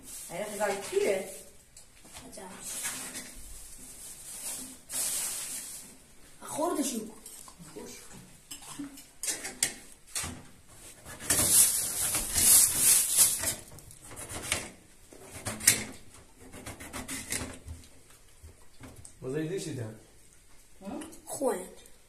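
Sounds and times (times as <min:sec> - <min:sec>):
rubbing and scraping: 0:02.2 - 0:06.0, 0:10.7 - 0:17.9.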